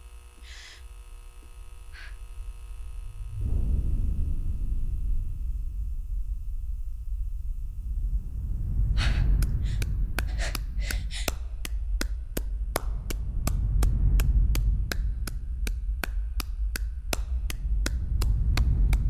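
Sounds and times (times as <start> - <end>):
low steady hum: 0.0 - 19.0
person clapping slowly: 9.0 - 19.0.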